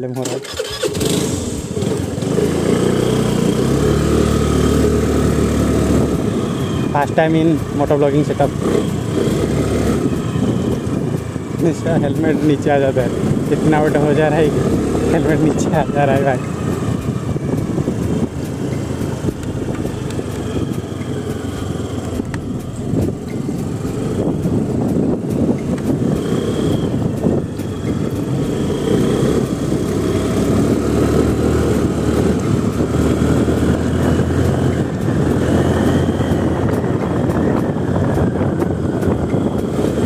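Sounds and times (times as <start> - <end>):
scooter engine drone: 0.0 - 40.0
wind rushing over microphone: 1.0 - 40.0.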